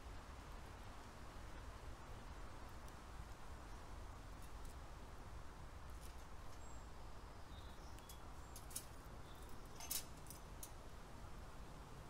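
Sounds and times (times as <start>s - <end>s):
faint high bird chirps: 6.6s - 9.9s.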